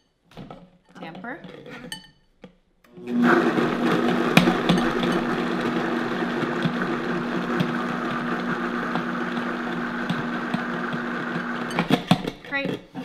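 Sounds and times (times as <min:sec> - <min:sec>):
blender motor running: 0:02.9 - 0:12.3.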